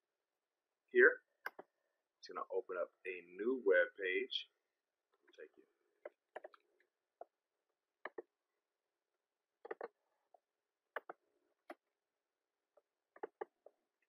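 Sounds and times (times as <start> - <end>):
computer mouse buttons clicking: 1.4 - 1.7, 6.1 - 6.6, 8.0 - 8.3, 9.6 - 10.0, 11.0 - 11.8, 13.2 - 13.6.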